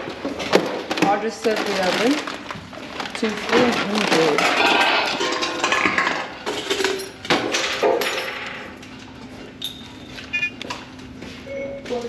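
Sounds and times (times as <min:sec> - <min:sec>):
keypad beeps: 0:10.2 - 0:10.7.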